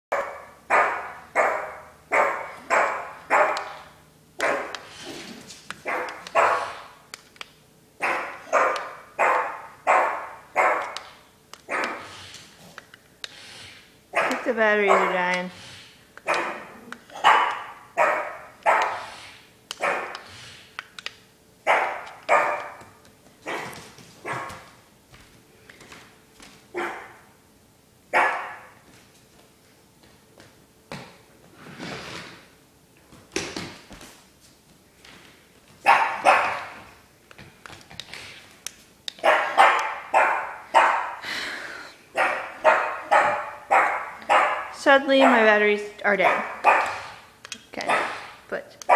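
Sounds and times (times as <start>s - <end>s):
dog barking: 0.1s - 3.8s, 4.4s - 4.8s, 5.8s - 6.9s, 8.0s - 11.0s, 11.7s - 12.1s, 14.1s - 15.2s, 16.2s - 19.1s, 19.8s - 20.2s, 21.7s - 22.8s, 23.4s - 24.7s, 26.8s - 27.2s, 28.1s - 28.7s, 35.8s - 36.8s, 39.2s - 41.2s, 42.2s - 45.4s, 46.2s - 47.2s, 47.8s - 48.9s.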